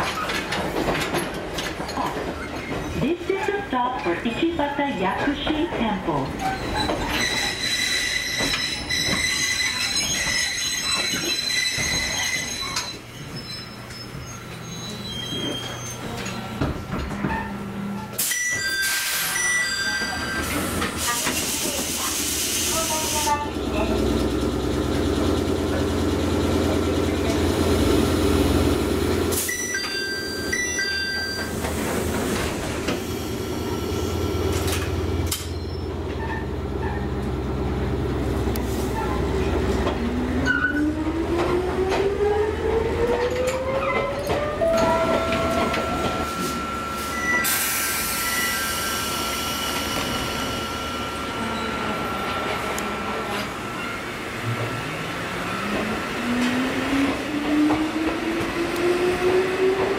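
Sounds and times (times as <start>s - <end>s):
train low hum: 0.0s - 59.9s
short electronic beeps: 44.6s - 48.8s.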